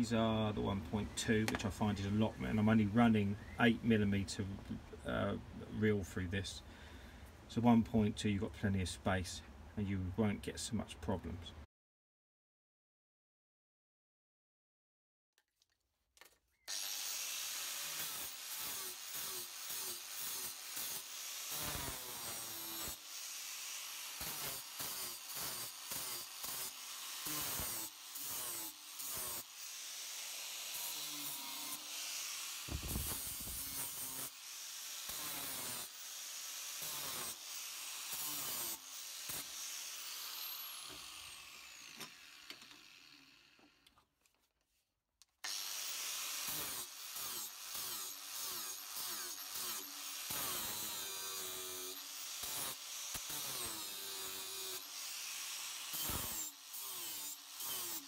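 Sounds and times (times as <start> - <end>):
angle grinder grinding metal: 16.7 - 43.9, 45.4 - 58.0.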